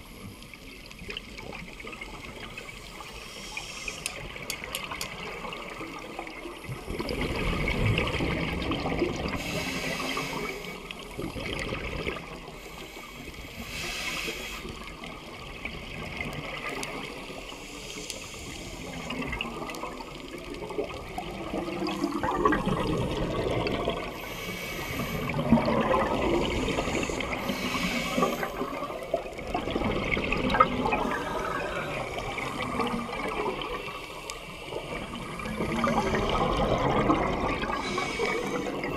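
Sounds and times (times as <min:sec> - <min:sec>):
scuba regulator breathing: 0:03.1 - 0:04.2, 0:09.3 - 0:10.9, 0:12.6 - 0:14.9, 0:17.5 - 0:19.1, 0:24.0 - 0:25.5, 0:26.3 - 0:29.0, 0:37.6 - 0:38.9
bubbles gurgling underwater: 0:04.3 - 0:09.6, 0:10.2 - 0:12.6, 0:14.8 - 0:17.6, 0:18.8 - 0:24.2, 0:25.1 - 0:34.0, 0:34.6 - 0:38.9.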